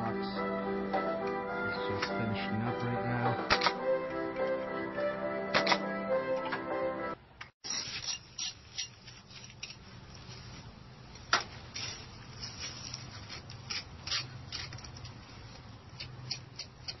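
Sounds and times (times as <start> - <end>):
hand tool scratching stone wall: 7.7 - 9.8.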